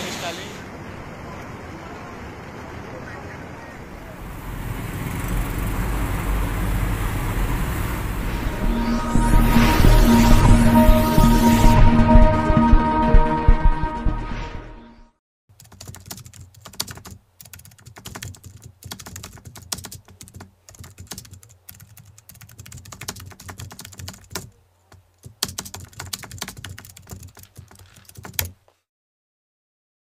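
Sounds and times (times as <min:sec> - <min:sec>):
intro music: 0:04.2 - 0:15.1
keyboard typing clicks: 0:15.6 - 0:24.5, 0:25.2 - 0:28.6.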